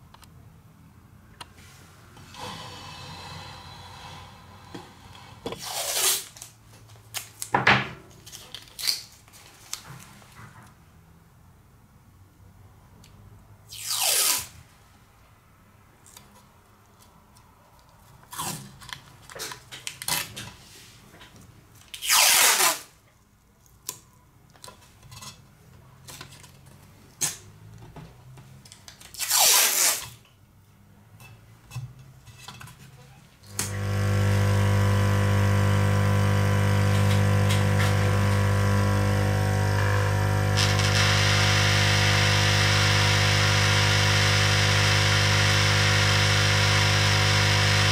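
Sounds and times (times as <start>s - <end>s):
masking tape ripping off roll: 5.6s - 6.6s, 8.2s - 9.8s, 13.7s - 14.6s, 21.9s - 23.0s, 29.1s - 30.2s, 40.6s - 41.5s
electric machine humming: 33.5s - 47.9s.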